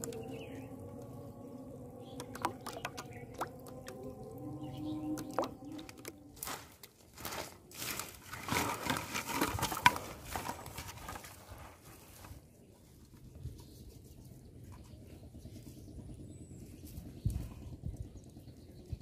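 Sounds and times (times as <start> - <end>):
faint steady tones: 0.0 - 7.3
plastic bottles crinkling: 5.2 - 11.6
dry weeds crunching underfoot: 5.7 - 12.7.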